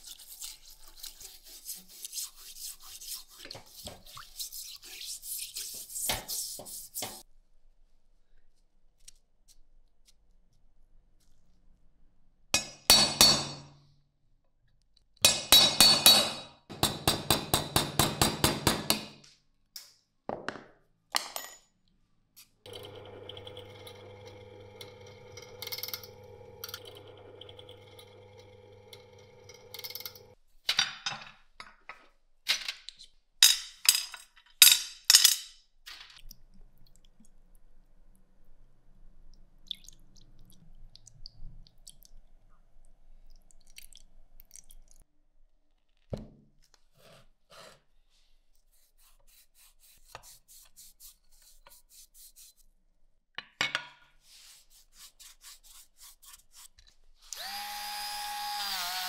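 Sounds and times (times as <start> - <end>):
quick strokes: 0.0 - 7.2
drill press motor humming: 22.7 - 30.3, 57.4 - 59.0.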